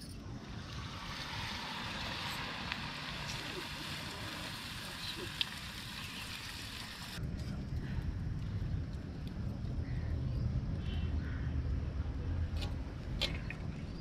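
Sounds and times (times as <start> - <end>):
batter sizzling in hot oil: 0.5 - 7.2.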